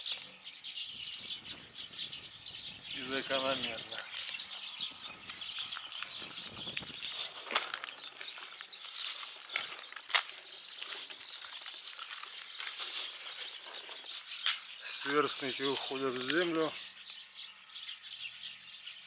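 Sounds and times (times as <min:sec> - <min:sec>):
rustling through branches: 0:02.2 - 0:16.6.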